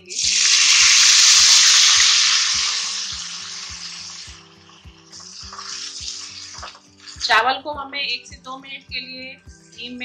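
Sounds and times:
rice sizzling in hot fat: 0:00.0 - 0:07.4.

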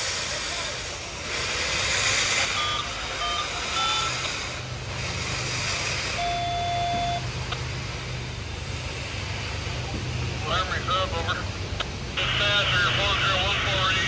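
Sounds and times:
steady low hum: 0:00.0 - 0:14.0
short electronic beeps: 0:02.5 - 0:04.2, 0:06.2 - 0:07.3
longer electronic beep: 0:06.2 - 0:07.3.

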